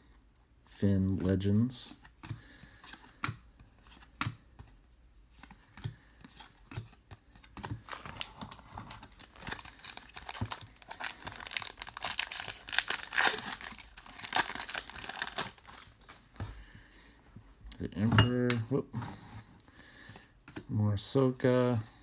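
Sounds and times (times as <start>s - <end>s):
foil wrapper crinkling: 7.8s - 16.2s.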